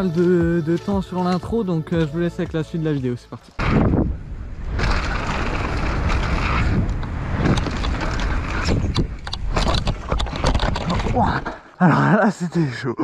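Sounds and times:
wind rushing over microphone: 3.6s - 11.2s
bike rattling over bumps: 3.6s - 11.6s
tyres rumbling on dirt: 3.6s - 11.8s.

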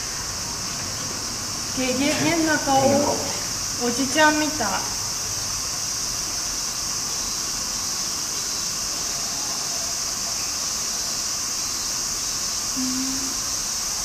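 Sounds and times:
steady high-pitched hiss: 0.0s - 14.0s.

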